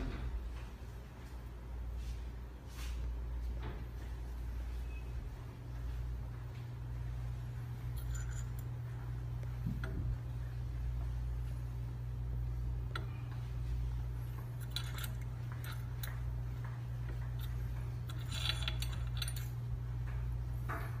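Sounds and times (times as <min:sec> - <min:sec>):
steady low hum: 0:00.0 - 0:21.0
light metallic clicks and clinks: 0:07.8 - 0:10.0, 0:14.4 - 0:21.0.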